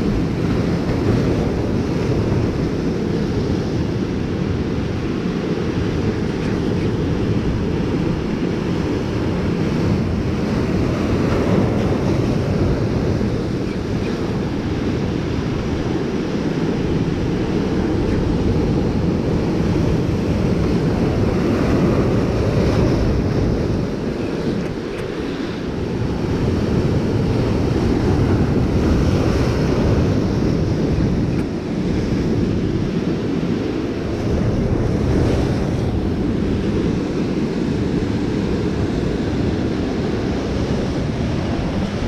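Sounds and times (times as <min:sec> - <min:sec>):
ocean surf breaking on rocks: 0:00.0 - 0:42.0
wind buffeting microphone: 0:00.0 - 0:42.0.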